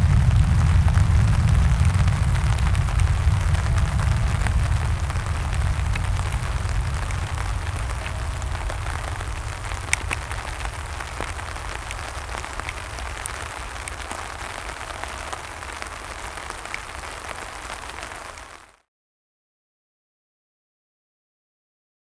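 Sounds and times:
jet engines rumbling: 0.0 - 17.9
steady rain falling: 0.0 - 18.8
drops ticking near microphone: 2.3 - 14.2.

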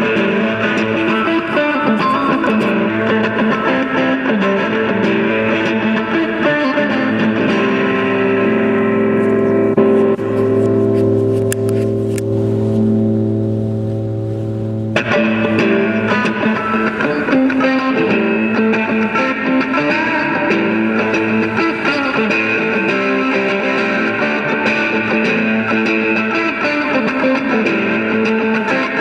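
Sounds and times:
electric guitar playing: 0.0 - 29.0.

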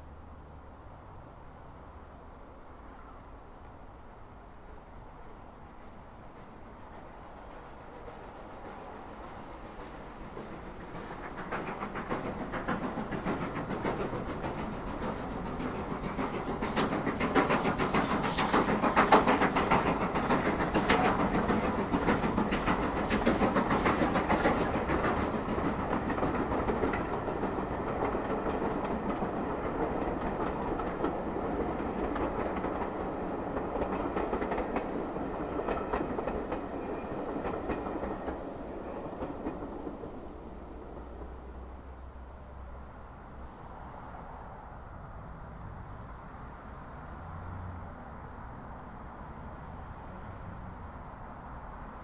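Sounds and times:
steam locomotive exhaust beats: 6.4 - 42.6.

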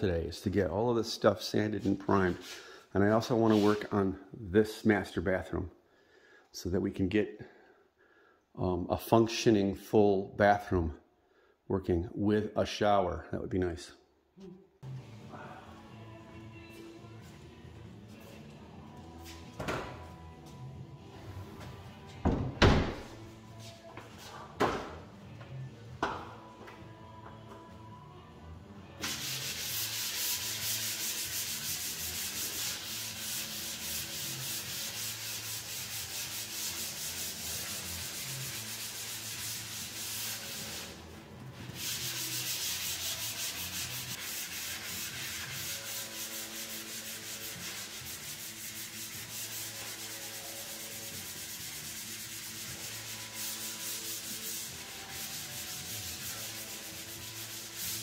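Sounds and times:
sanding a wall: 29.0 - 58.0.

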